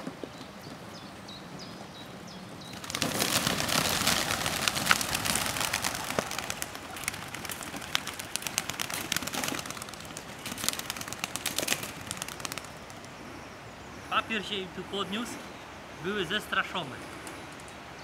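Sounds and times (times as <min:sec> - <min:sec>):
pigeons wing beats and claps: 0:02.6 - 0:13.3, 0:17.0 - 0:17.8.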